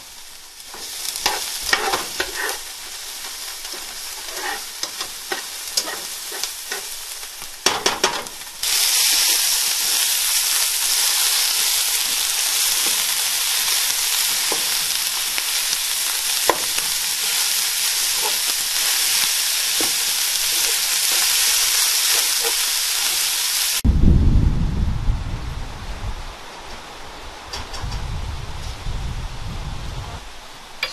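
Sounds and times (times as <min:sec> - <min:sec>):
meat and vegetables sizzling in pan: 0:00.0 - 0:23.9
spatula scraping a pan: 0:00.7 - 0:07.2, 0:13.6 - 0:23.4
loud low rumble: 0:23.8 - 0:26.4.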